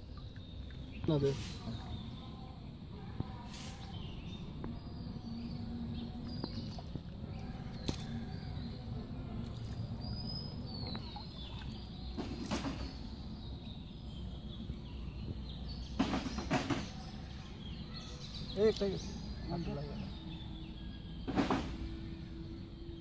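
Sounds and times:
water sloshing and splashing: 0.0s - 2.7s, 4.4s - 17.3s
outdoor background noise: 0.0s - 23.0s.

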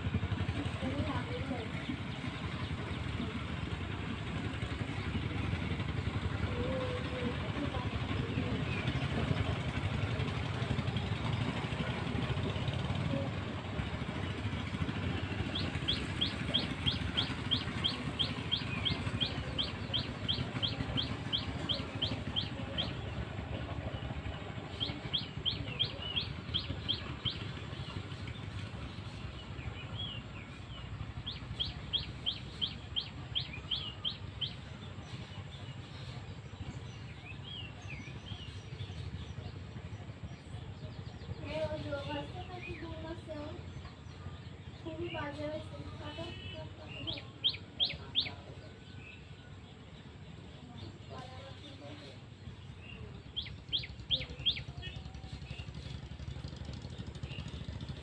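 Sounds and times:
low steady rumble: 0.0s - 58.0s.

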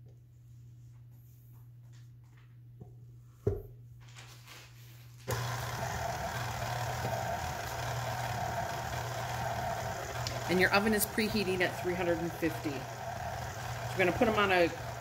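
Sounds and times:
stand mixer motor running: 5.3s - 15.0s.

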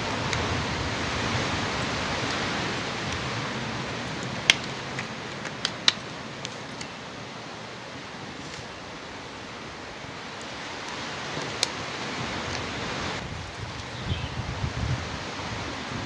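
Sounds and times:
wind hiss on microphone: 0.0s - 16.0s
gloves clicking and snapping: 4.2s - 7.0s.

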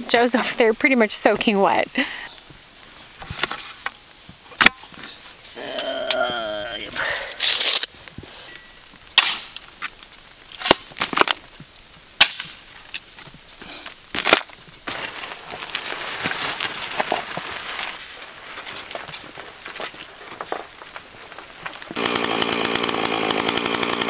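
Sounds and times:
shovel scraping gravel: 6.7s - 7.9s, 13.6s - 22.2s
wheelbarrow rolling over gravel: 12.7s - 22.0s
gravel thudding into wheelbarrow: 14.1s - 22.0s.

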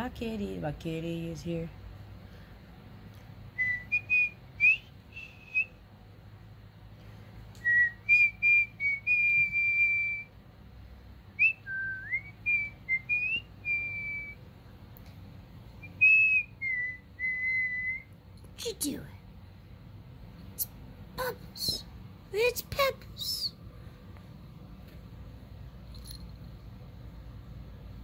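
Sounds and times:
person whistling: 7.6s - 10.3s, 11.4s - 14.4s, 15.8s - 18.1s.

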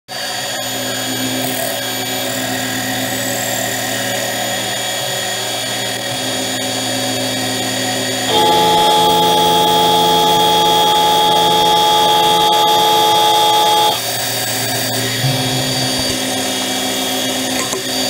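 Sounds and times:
metal lathe whine: 0.1s - 18.0s
high ringing tone: 8.3s - 18.0s.

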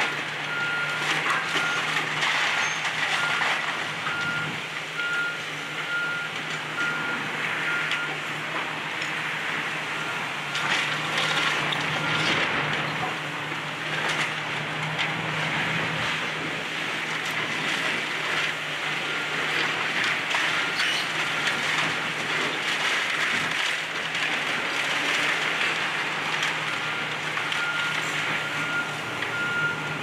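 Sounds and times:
diesel engine running: 0.0s - 30.0s
brick and timber crunching: 16.0s - 28.4s.

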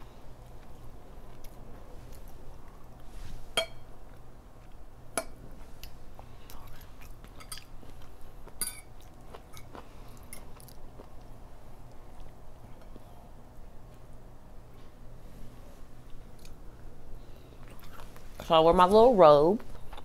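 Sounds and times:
chewing and mouth sounds: 5.8s - 13.1s, 16.0s - 18.4s, 19.6s - 20.0s.

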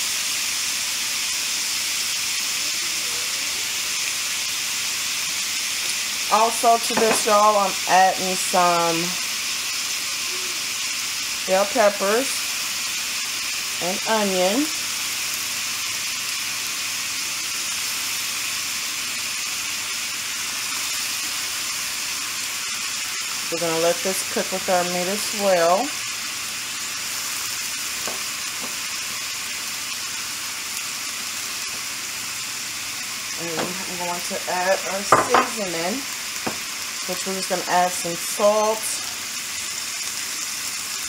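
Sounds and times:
meat sizzling in a skillet: 0.0s - 41.0s.

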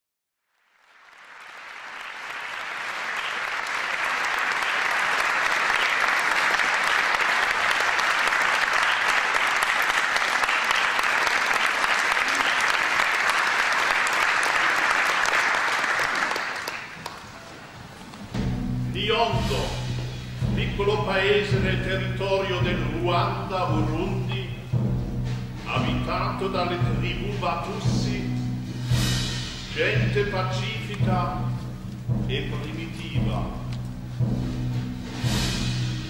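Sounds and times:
audience applauding: 0.5s - 18.2s.

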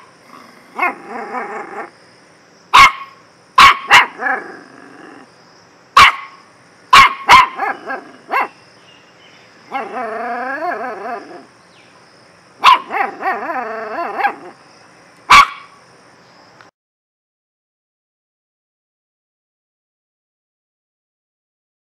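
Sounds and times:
puppy barking and yipping: 0.7s - 1.9s, 2.7s - 5.3s, 6.0s - 8.6s, 9.7s - 11.5s, 12.6s - 14.6s, 15.3s - 15.8s
puppy wavering howl: 0.7s - 1.9s, 9.7s - 11.5s, 12.8s - 14.6s.

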